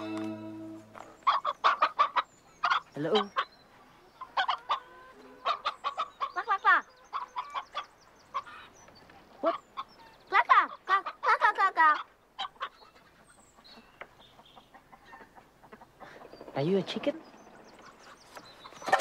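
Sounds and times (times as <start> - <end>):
music: 0.0 - 1.0
clucks and squawks: 1.2 - 16.4.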